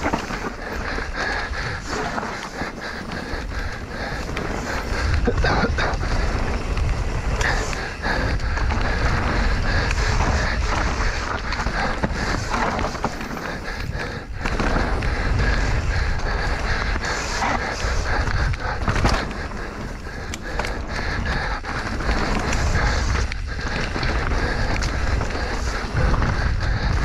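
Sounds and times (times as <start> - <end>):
bike clattering and rattling: 0.0 - 27.0
tyres rolling over dirt and rocks: 0.0 - 27.0
wind rumbling on microphone: 0.0 - 27.0.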